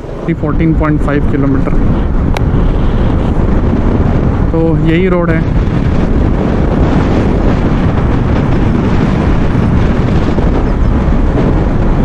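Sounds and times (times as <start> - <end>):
motorcycle engine: 0.0 - 4.6, 5.4 - 12.0
road noise: 0.0 - 12.0
wind rushing over microphone: 0.0 - 12.0.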